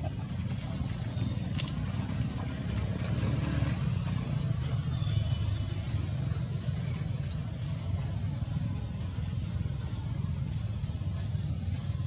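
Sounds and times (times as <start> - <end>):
outdoor background rumble: 0.0 - 12.0.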